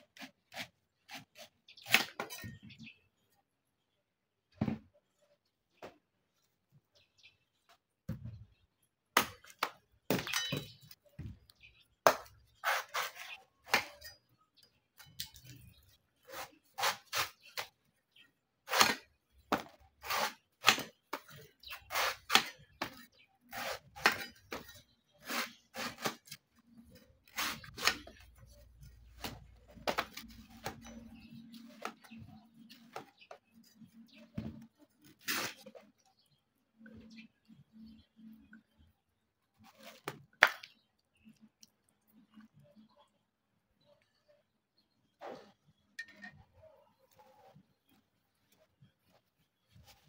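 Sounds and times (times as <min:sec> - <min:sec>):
cleaver chopping coconut husk: 0:18.7 - 0:24.6, 0:25.2 - 0:26.3.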